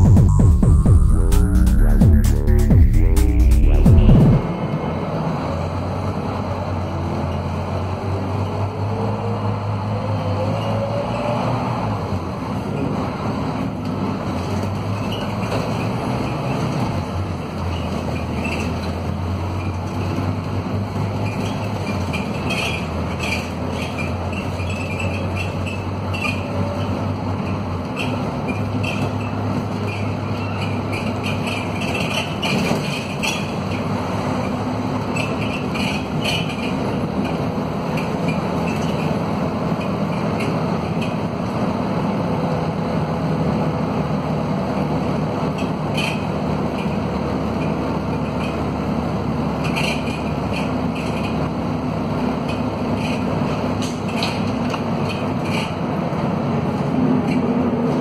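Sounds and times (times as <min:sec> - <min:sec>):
bus engine droning: 0:00.0 - 0:58.0
road noise: 0:00.0 - 0:58.0
bus body rattling: 0:12.3 - 0:58.0.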